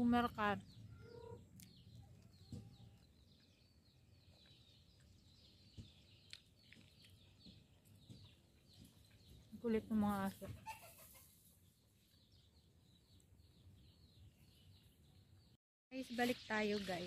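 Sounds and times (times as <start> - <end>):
chickens clucking: 10.1 - 12.5.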